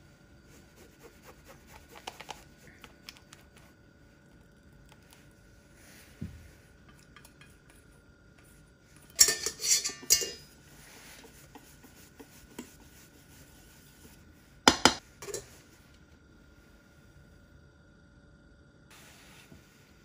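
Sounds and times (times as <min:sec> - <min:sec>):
whisk clinking in metal bowl: 0:09.0 - 0:12.8.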